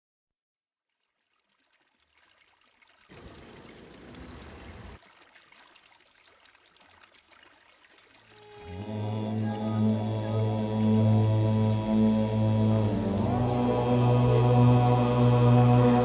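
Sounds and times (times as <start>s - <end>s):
trickling running water: 0.9s - 10.2s
music with low drone: 8.6s - 16.0s.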